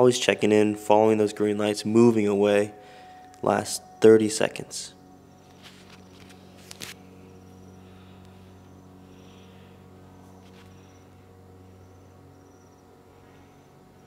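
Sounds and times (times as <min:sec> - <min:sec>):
low steady hum: 0:00.0 - 0:14.0
cricket chirping: 0:04.8 - 0:14.0.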